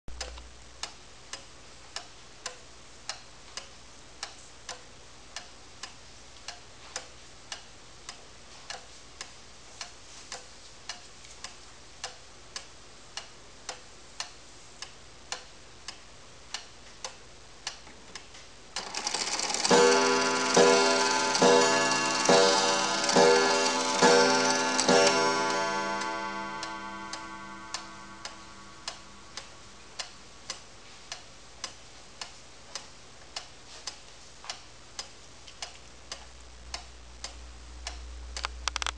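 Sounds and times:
pendulum clock ticking: 0.1s - 17.8s, 18.7s - 38.1s
clock hammer striking bell: 18.8s - 29.7s
clock striking train whirring: 18.8s - 29.8s.

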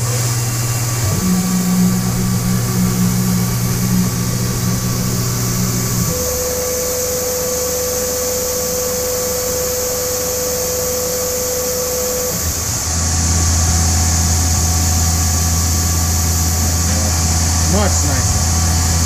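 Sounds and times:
lower machine hum: 0.0s - 19.0s
milling machine hum: 0.0s - 19.0s
steady machine tone: 0.0s - 19.0s.

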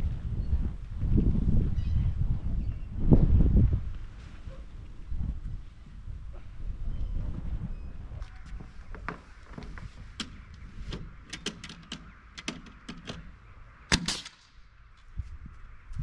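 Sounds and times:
wind rumble on microphone: 0.0s - 16.0s
power drill clicks and knocks: 10.2s - 13.3s.

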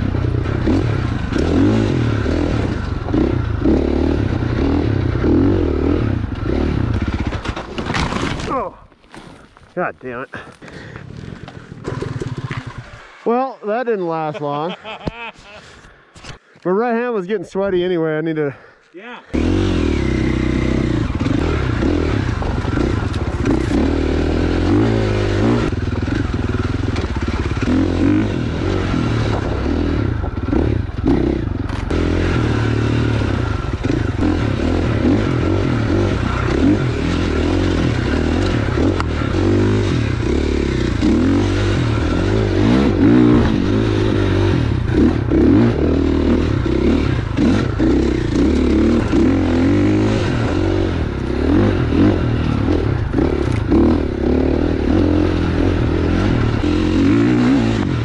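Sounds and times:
dirt bike engine revving: 0.0s - 7.6s, 10.8s - 13.5s, 19.3s - 58.0s.

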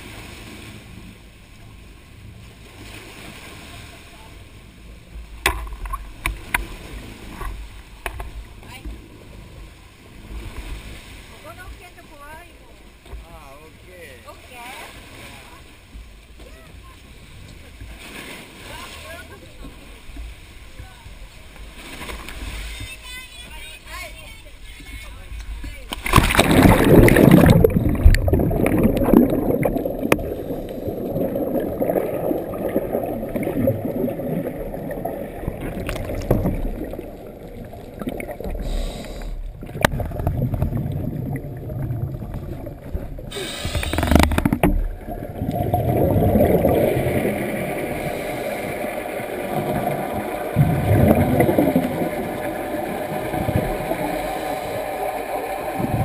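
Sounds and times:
muffled underwater sound: 22.6s - 56.0s
diver splashing into water: 26.0s - 34.8s
regulator exhaust bubbles gurgling: 26.1s - 38.7s, 39.4s - 56.0s.

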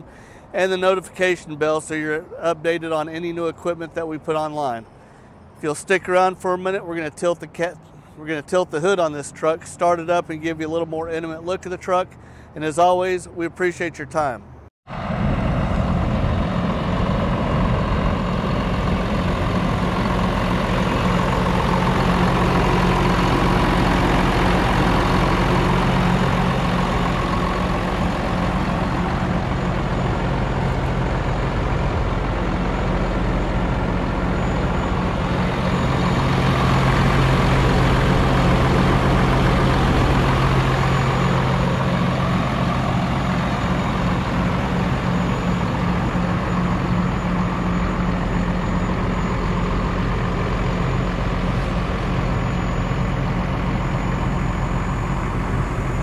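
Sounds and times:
truck diesel engine idling: 14.2s - 56.0s.

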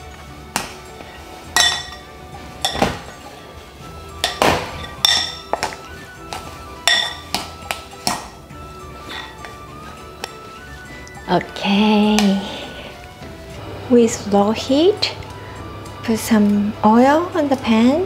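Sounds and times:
metal spoon clinking glass bowl: 1.6s - 2.9s, 4.2s - 5.8s, 6.8s - 7.4s.

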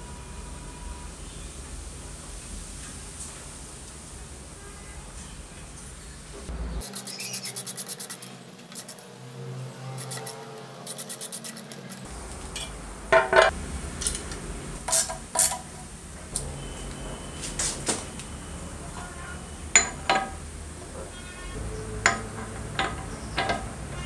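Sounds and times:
metal rasping strokes: 6.8s - 9.0s, 9.8s - 13.5s
metallic clanks and clinks: 19.8s - 20.4s, 22.0s - 23.8s.

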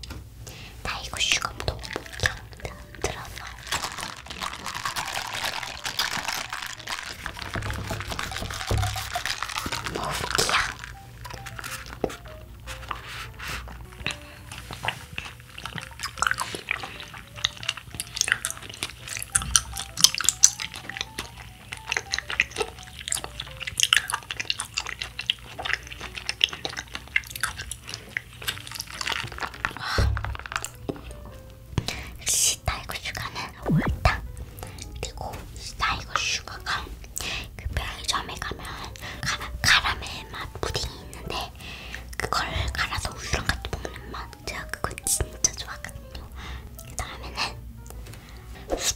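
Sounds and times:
soft background music: 0.0s - 48.9s
chewing: 0.9s - 32.1s, 32.9s - 48.9s
straw stirring a drink: 0.9s - 32.1s, 34.6s - 46.2s
slurping through a straw: 3.1s - 30.8s.

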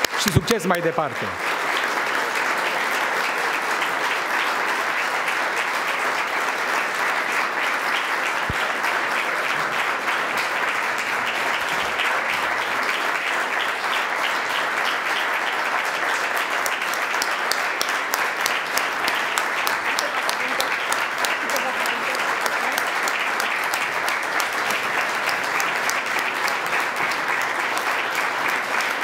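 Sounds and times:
audience applauding: 0.0s - 29.0s
sharp close claps: 8.2s - 12.4s.

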